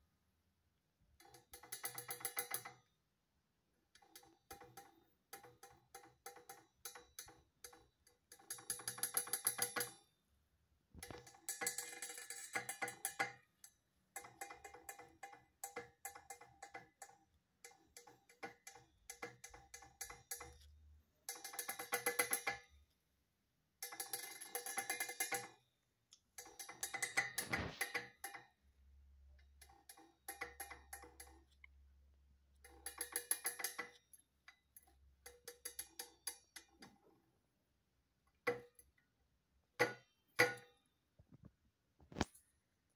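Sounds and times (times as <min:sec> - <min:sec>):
bird tapping beak on metal cup: 0:01.2 - 0:02.8, 0:04.0 - 0:10.0, 0:14.2 - 0:20.7, 0:21.3 - 0:22.7, 0:26.4 - 0:28.5, 0:29.7 - 0:31.5, 0:32.6 - 0:37.0, 0:39.8 - 0:40.7.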